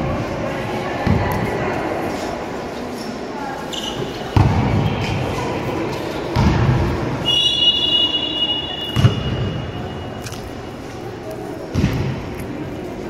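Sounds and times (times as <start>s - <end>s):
high whistle-like tone: 7.2s - 10.2s.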